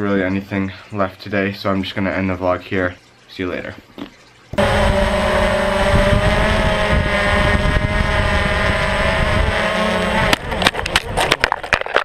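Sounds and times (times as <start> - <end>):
drone propellers whining: 4.6 - 11.2
wind on microphone: 4.6 - 11.3.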